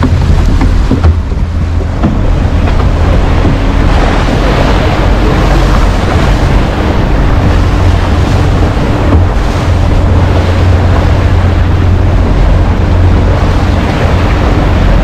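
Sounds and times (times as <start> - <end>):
boat engine humming: 0.0 - 15.0
water rushing along hull: 0.0 - 15.0
wind buffeting microphone: 0.0 - 15.0.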